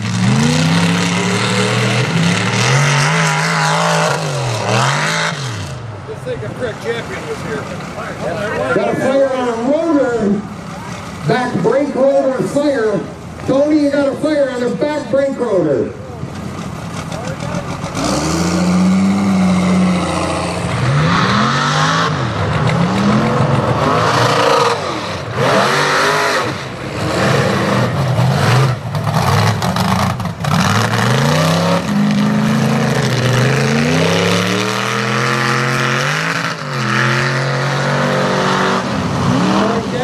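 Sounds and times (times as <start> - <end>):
truck engine revving hard: 0.0 - 15.9, 16.5 - 40.0.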